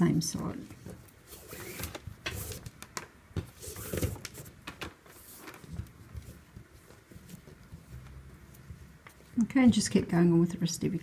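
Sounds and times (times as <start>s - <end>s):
cord rustling and swishing: 0.6s - 9.7s
soft clicks and brushing: 5.4s - 9.9s.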